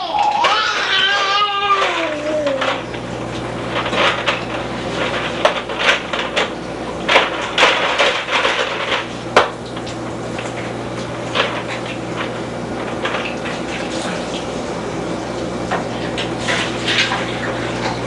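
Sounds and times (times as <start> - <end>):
baby vocal sound: 0.0 - 2.8
steady low hum: 0.0 - 18.0.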